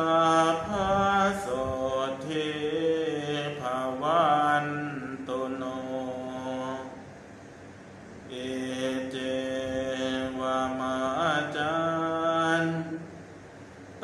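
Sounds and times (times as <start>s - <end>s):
voices chanting slowly: 0.0s - 7.3s, 8.2s - 13.3s.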